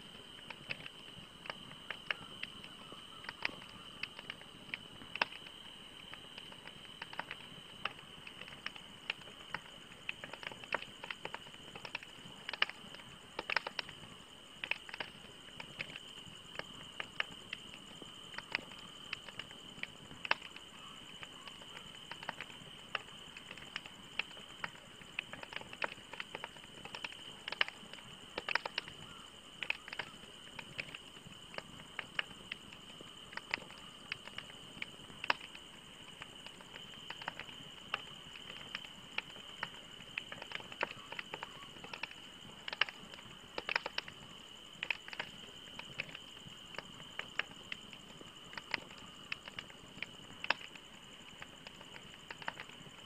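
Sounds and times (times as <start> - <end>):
campfire crackling and popping: 0.0 - 53.0
low steady hiss: 0.0 - 53.0.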